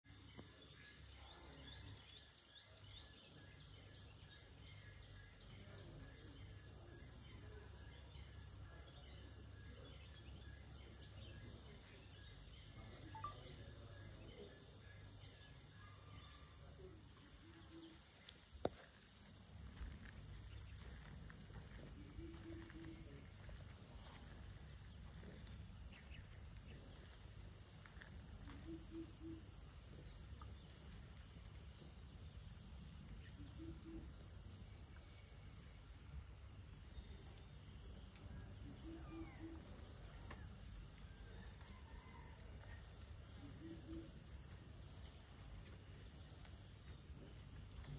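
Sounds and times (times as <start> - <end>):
faint bird calls: 38.2 - 40.6.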